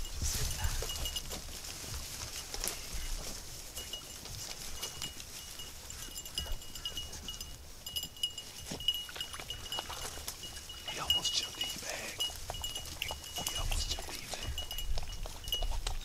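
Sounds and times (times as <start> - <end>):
distant dogs baying: 4.6 - 7.6, 8.4 - 15.5.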